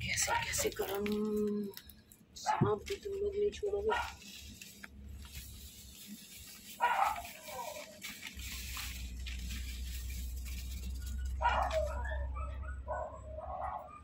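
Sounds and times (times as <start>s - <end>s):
powder pouring from a packet: 4.0s - 12.0s
dog whimpering and yipping: 11.4s - 14.0s.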